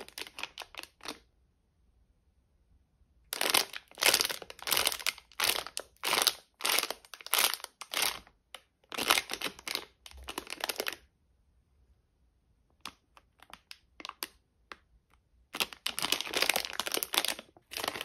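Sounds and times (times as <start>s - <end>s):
plastic sachet crinkling: 0.0s - 1.2s, 3.3s - 11.0s, 12.8s - 14.4s, 15.5s - 18.0s.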